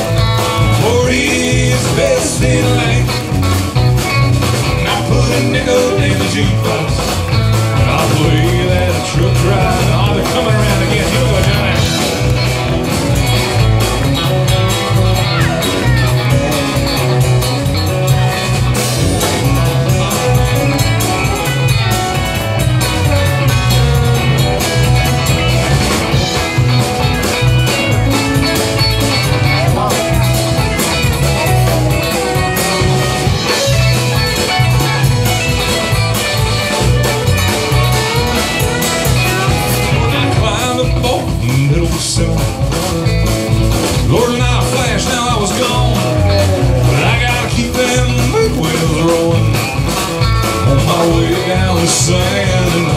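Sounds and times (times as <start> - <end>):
country-rock band playing: 0.0 - 52.9.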